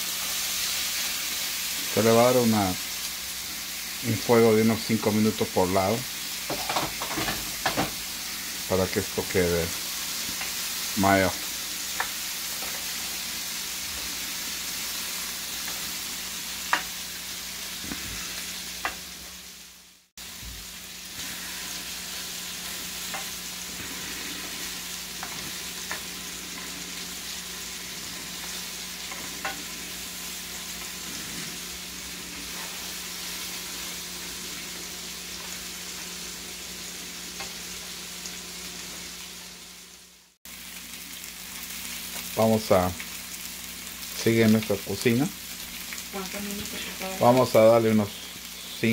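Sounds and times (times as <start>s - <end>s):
food sizzling in pans: 0.0s - 48.9s
utensils clicking against pans: 6.5s - 8.0s, 28.4s - 29.7s.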